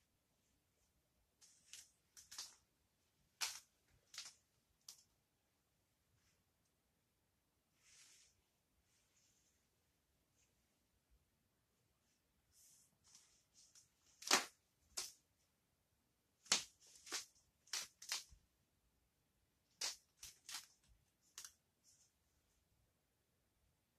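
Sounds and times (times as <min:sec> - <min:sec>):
fabric rustling: 0:07.7 - 0:09.8
fabric snapping: 0:14.2 - 0:15.2, 0:16.4 - 0:18.4.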